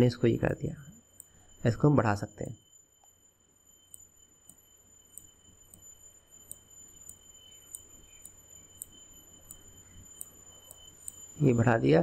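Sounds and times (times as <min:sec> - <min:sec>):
high-pitched whine: 0:00.0 - 0:12.0
light ticks: 0:03.9 - 0:11.3.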